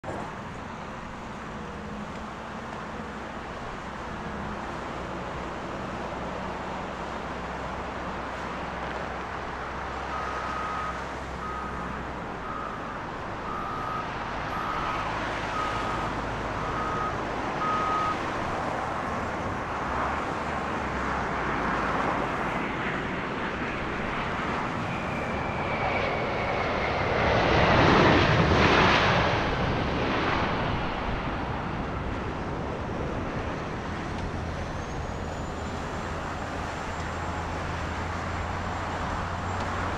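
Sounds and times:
jet landing with reverse thrust: 0.1s - 39.9s
reversing alarm beeping: 10.1s - 18.2s.

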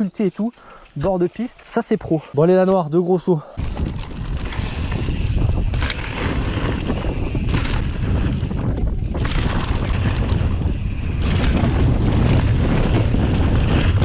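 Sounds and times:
mountain bike rolling on dirt: 0.0s - 14.0s
bike rattling over bumps: 3.6s - 14.0s
wind on microphone: 3.6s - 14.0s.

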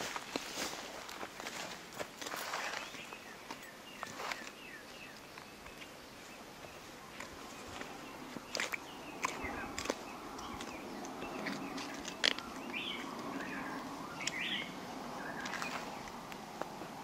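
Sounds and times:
bird chirps: 2.6s - 16.2s.

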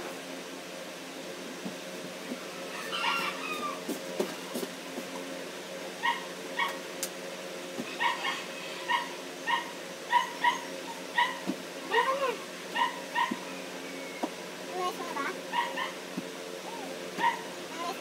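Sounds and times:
steady low hum: 0.0s - 18.0s
small dog yipping: 6.0s - 6.8s, 8.0s - 11.4s, 12.8s - 13.4s, 15.5s - 16.0s, 16.6s - 17.5s
small dog whining: 16.6s - 17.4s.

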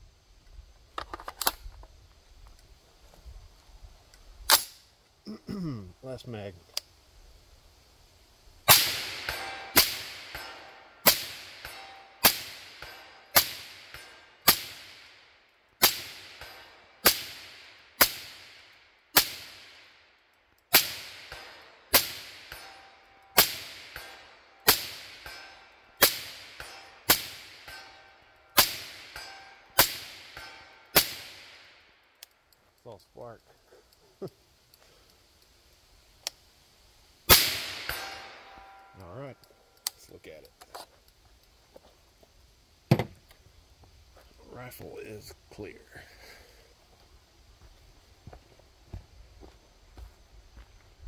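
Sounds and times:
suppressed rifle shots: 8.7s - 15.1s, 28.6s - 31.7s, 37.3s - 38.8s.

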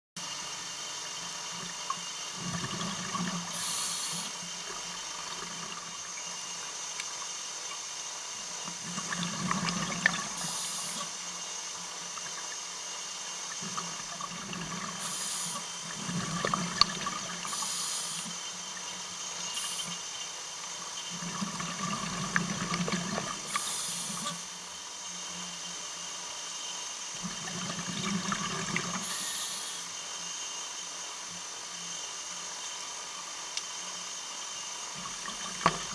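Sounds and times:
steady background hiss: 0.2s - 35.9s
exhaled bubbles gurgling: 2.3s - 6.2s, 8.7s - 11.2s, 13.5s - 20.0s, 21.1s - 24.5s, 27.2s - 29.3s, 35.0s - 35.9s
regulator inhalation hiss: 3.4s - 4.7s, 10.3s - 11.8s, 14.8s - 16.5s, 17.4s - 20.2s, 23.4s - 25.4s, 29.0s - 30.4s.

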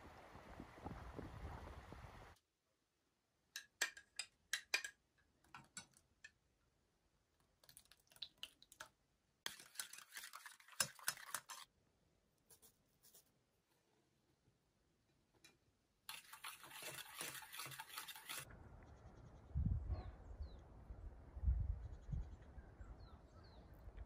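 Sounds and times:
spoon scraping sour cream: 9.4s - 11.7s, 16.1s - 18.5s.

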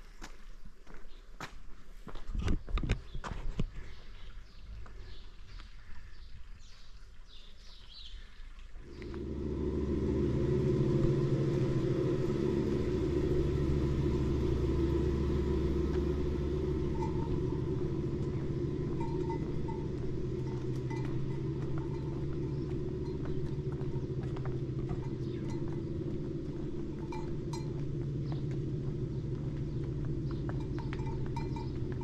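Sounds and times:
engine droning: 8.8s - 32.0s.

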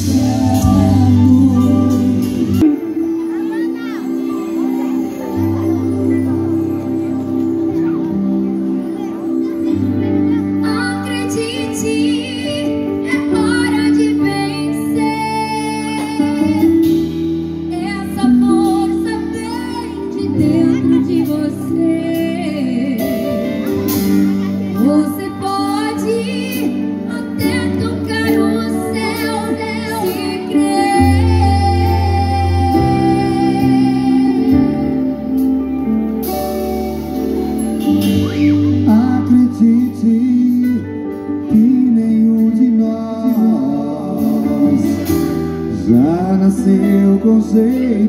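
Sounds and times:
woman singing: 0.0s - 2.8s, 10.6s - 17.0s, 17.7s - 23.5s, 24.7s - 35.4s
live pop band playing: 0.0s - 48.0s.

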